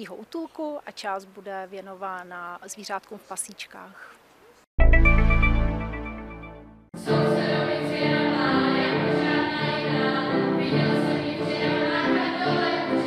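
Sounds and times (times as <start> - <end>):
girls' choir singing: 7.0 - 13.0.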